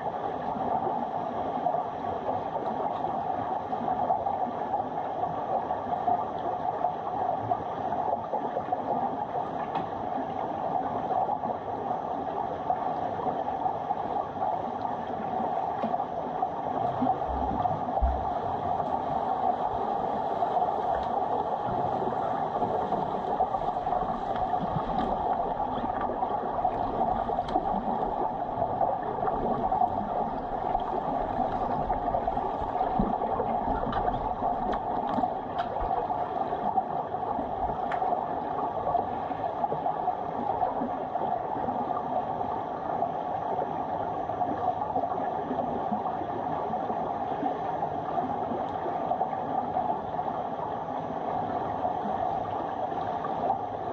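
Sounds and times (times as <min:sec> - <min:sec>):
muffled underwater rushing: 0:00.0 - 0:42.9
faint underwater clicks and knocks: 0:09.4 - 0:10.4, 0:14.8 - 0:38.6.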